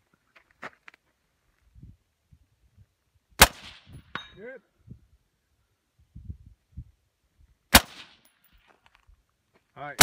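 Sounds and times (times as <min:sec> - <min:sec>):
rifle shots: 0:03.4 - 0:03.9, 0:07.7 - 0:08.3
bullet ringing on steel target: 0:04.0 - 0:04.5.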